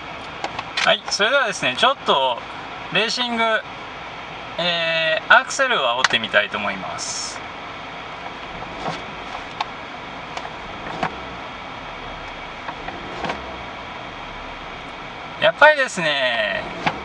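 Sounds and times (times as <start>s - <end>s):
diesel engine revving: 7.8s - 17.0s.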